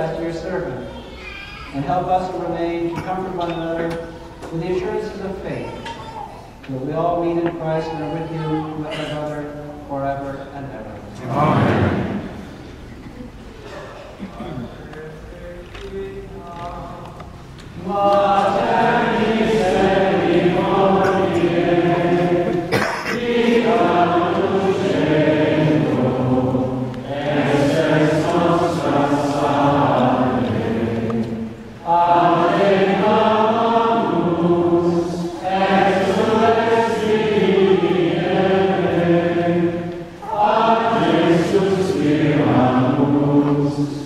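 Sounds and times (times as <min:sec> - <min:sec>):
choir chanting: 0:11.2 - 0:12.6, 0:17.8 - 0:44.0.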